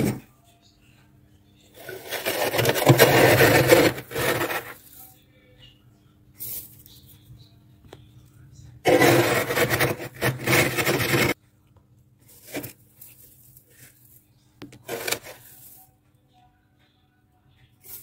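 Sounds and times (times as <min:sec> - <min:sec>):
glass scraping through frost: 0:01.8 - 0:04.8, 0:08.9 - 0:11.4.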